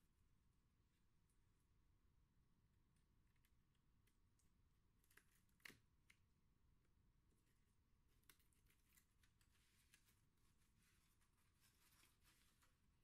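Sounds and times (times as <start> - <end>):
faint clicks and rustles: 8.1 - 13.0.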